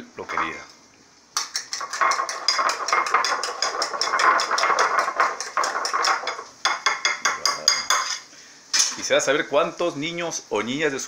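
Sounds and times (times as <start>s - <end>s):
fork beating eggs in bowl: 1.4s - 8.2s.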